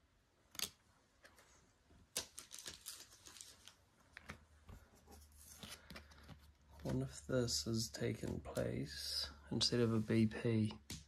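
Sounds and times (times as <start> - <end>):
cards clicking and rustling: 0.5 - 7.2.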